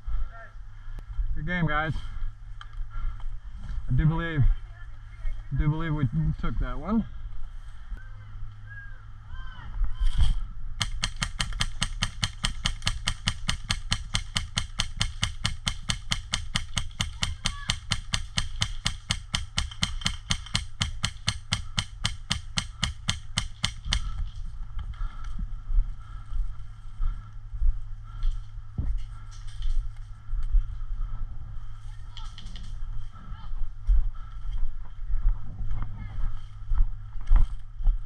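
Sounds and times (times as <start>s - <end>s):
rapid sharp clicks: 10.8s - 24.2s.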